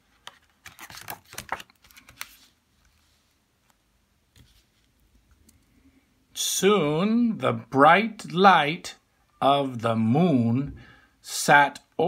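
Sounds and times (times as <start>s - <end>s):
book page turning: 0.0s - 5.0s.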